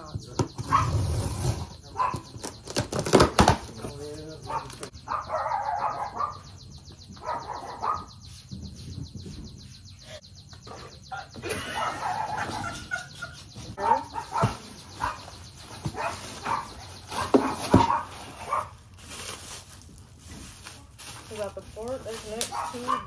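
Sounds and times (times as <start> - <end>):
plastic wrap crinkling: 16.0 - 23.0.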